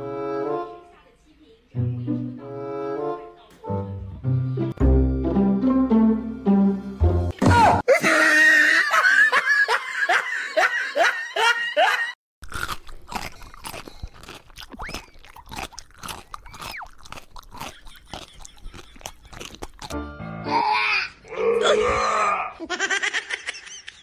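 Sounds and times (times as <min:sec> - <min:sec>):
cat biting and chewing: 0:12.4 - 0:20.0.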